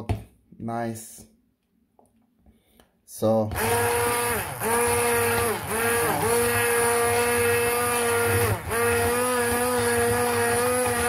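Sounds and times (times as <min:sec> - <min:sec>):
hand blender motor humming: 0:03.5 - 0:11.0.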